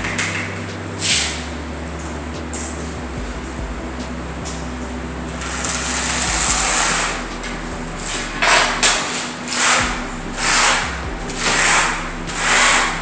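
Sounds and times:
steady low hum: 0.0s - 13.0s
trowel scraping mortar on concrete: 5.3s - 13.0s.

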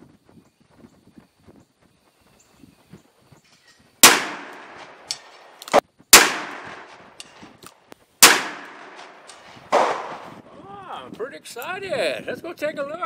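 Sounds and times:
revolver shots with echo: 4.0s - 5.3s, 6.2s - 7.0s, 8.2s - 10.3s.

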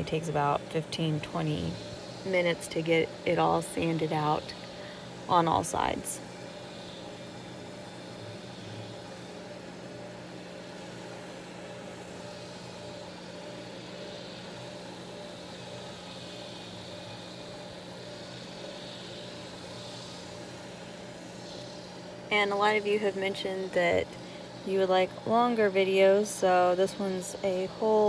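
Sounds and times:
drum sander humming: 0.0s - 28.0s.

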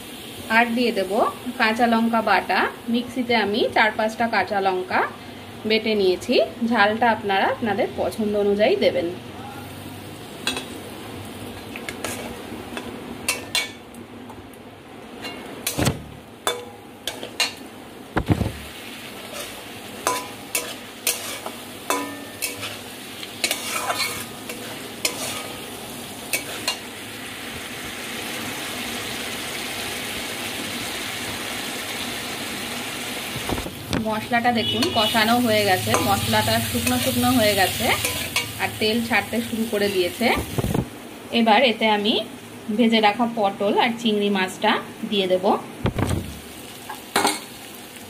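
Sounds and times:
paste sizzling in oil: 9.6s - 13.8s, 16.5s - 40.8s, 46.2s - 48.0s
metal spatula scraping metal pan: 19.3s - 25.7s.

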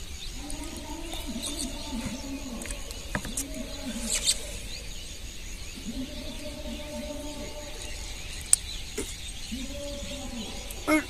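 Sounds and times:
low repeating call: 8.9s - 11.0s.

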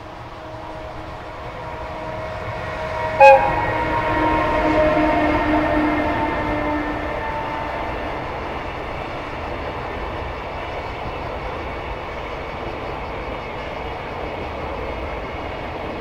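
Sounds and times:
train horn: 0.0s - 8.8s
train wheels rolling on rail: 0.0s - 16.0s.

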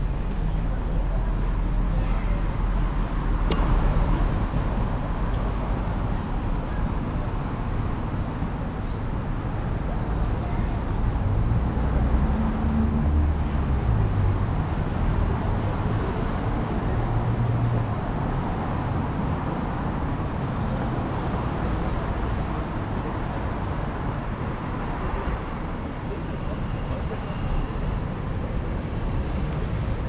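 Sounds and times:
road traffic noise: 0.0s - 30.0s.

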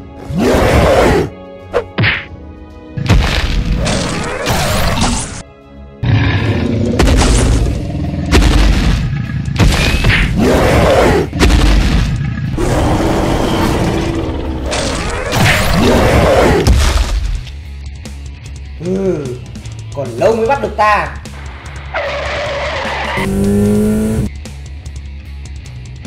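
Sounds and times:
fight booms and thuds: 3.0s - 5.4s, 7.0s - 12.6s, 14.6s - 17.5s.

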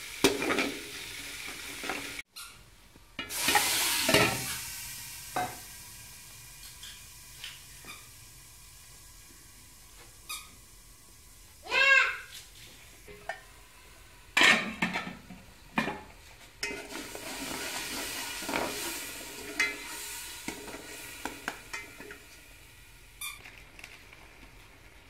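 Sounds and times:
oil sizzling in a pot: 0.0s - 2.5s, 3.2s - 25.0s
metal clanking on metal: 14.4s - 17.1s.

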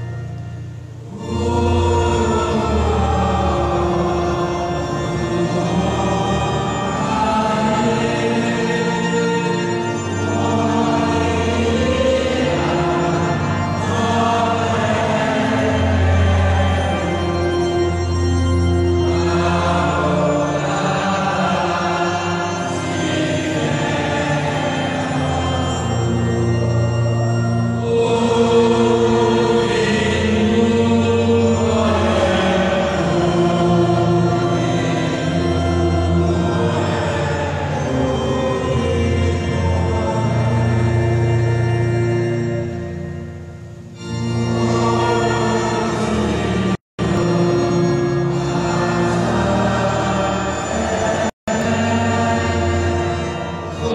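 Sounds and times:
congregation singing: 0.0s - 53.9s
long held chords: 0.0s - 53.9s.

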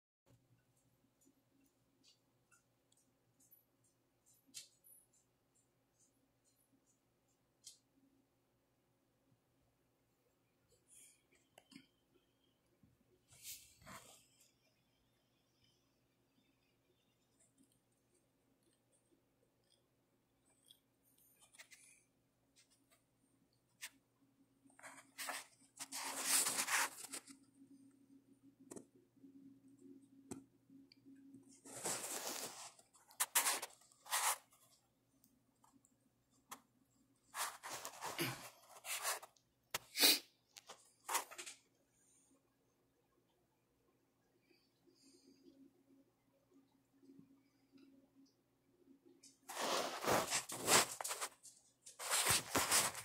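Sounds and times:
rustling and scraping: 24.8s - 27.5s, 31.5s - 34.8s, 37.3s - 39.9s, 40.6s - 41.7s, 49.2s - 53.0s.

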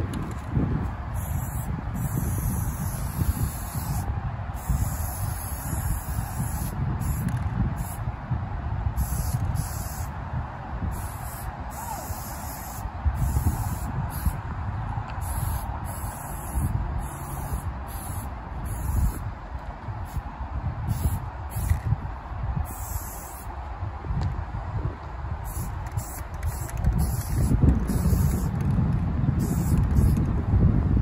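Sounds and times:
spray paint can hissing: 1.1s - 8.0s, 9.0s - 10.2s, 10.9s - 14.4s, 15.2s - 19.2s, 20.0s - 22.0s, 22.6s - 23.5s, 25.4s - 28.7s, 29.4s - 30.3s.

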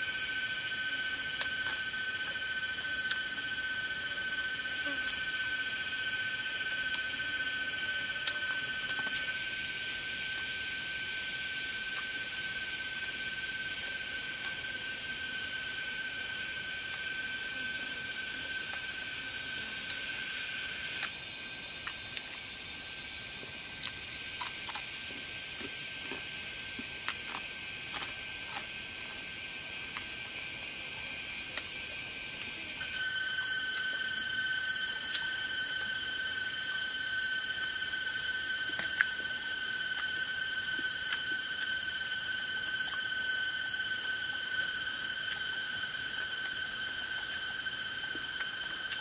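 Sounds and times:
chorus of insects: 0.0s - 49.0s.

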